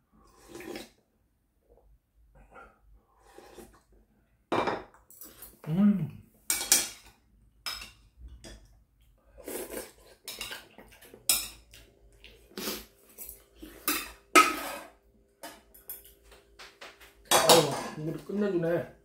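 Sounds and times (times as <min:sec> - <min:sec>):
slurping noodles: 0:00.2 - 0:01.0, 0:03.1 - 0:03.9, 0:09.4 - 0:10.2.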